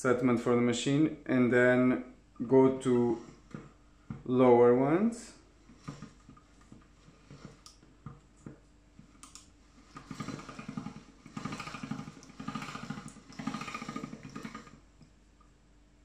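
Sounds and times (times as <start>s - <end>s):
pasta machine gears rattling: 5.7s - 7.7s, 9.8s - 14.8s.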